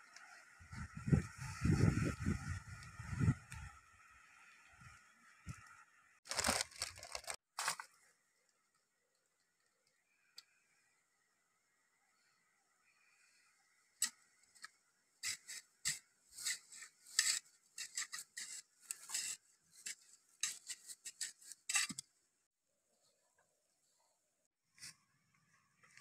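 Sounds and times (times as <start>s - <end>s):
digging rod scraping into dry soil: 15.2s - 22.0s.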